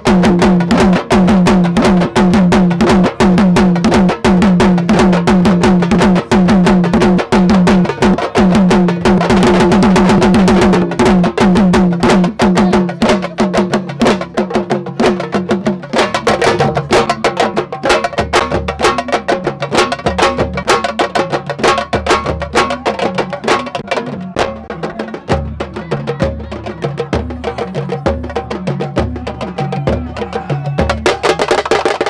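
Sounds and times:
fast drumming: 0.0 - 32.0.

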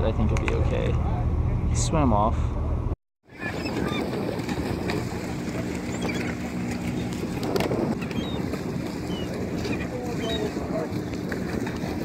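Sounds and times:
boat engine running: 0.0 - 12.0
gulls crying: 3.3 - 12.0
water washing: 3.3 - 12.0
wind noise on microphone: 3.3 - 12.0.

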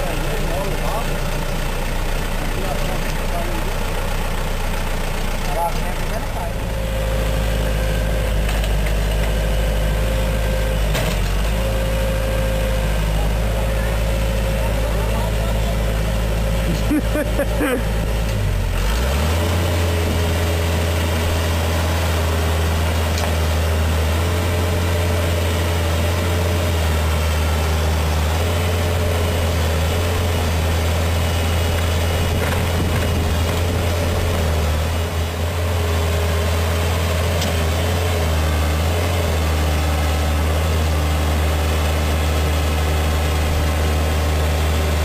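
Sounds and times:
diesel engine running: 0.0 - 45.0.

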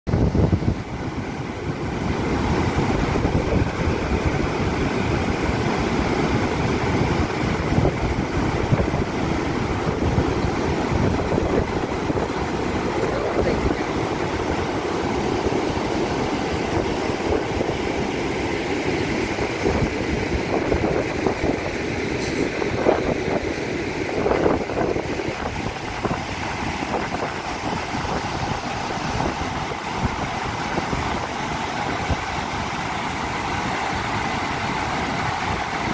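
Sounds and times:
roar of falling water: 0.4 - 35.9.

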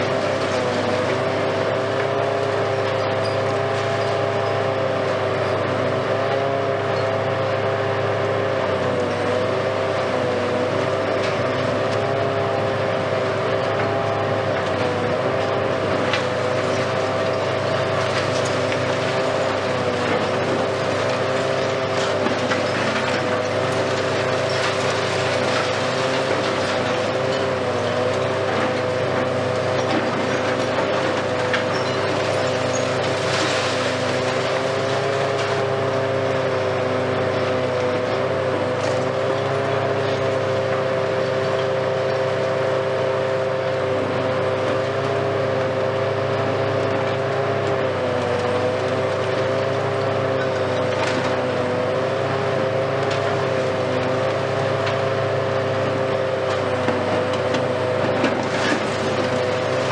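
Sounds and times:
excavator engine drone: 0.0 - 59.9
concrete crunching and clattering: 13.4 - 36.2, 56.3 - 59.9
falling debris rush: 15.2 - 36.0.

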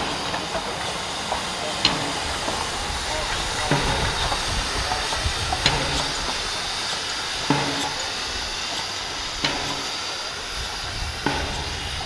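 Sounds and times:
locomotive knocking: 0.0 - 12.0
steam hissing: 0.0 - 12.0.

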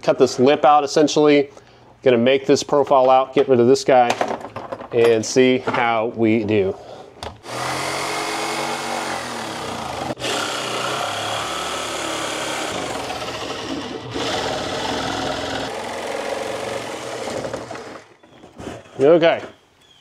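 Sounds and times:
jigsaw cutting plastic: 7.4 - 18.9.

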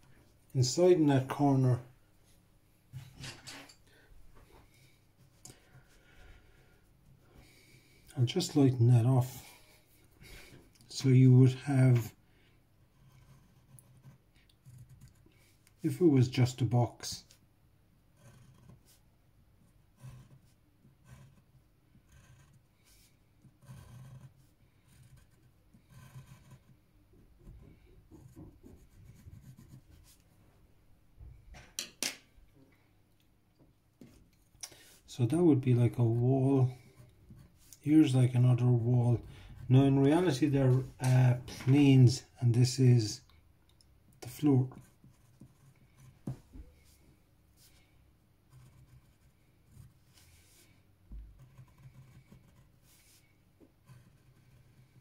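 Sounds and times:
pencil scratching on paper: 12.8 - 15.6, 18.2 - 30.2, 44.6 - 47.9, 48.5 - 55.0.

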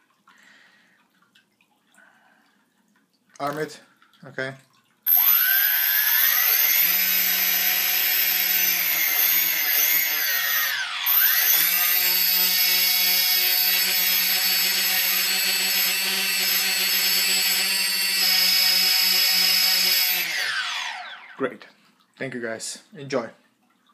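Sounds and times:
drone motors whining: 5.1 - 21.4.

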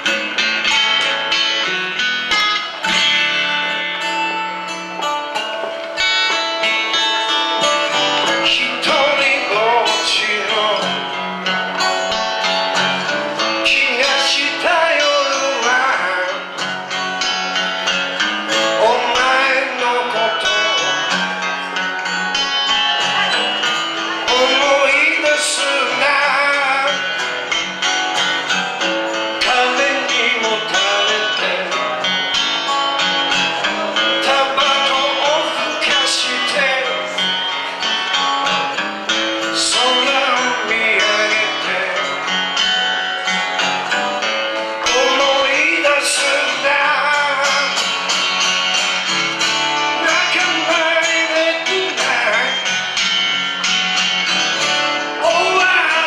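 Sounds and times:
acoustic guitar strumming: 0.0 - 56.0
man singing into microphone: 7.9 - 11.3, 13.0 - 16.6, 18.2 - 21.4, 23.1 - 27.3, 29.3 - 32.3, 33.6 - 43.1, 44.7 - 48.2, 49.7 - 53.0, 54.8 - 56.0.

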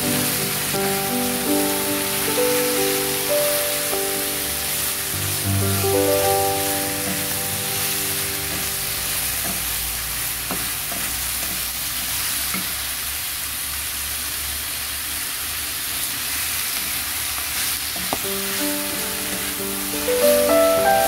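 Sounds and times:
background music: 0.0 - 9.4, 18.6 - 21.0
greens sizzling in a wok: 0.0 - 21.0
wooden spatula knocking pan: 9.4 - 9.8, 10.4 - 11.7.

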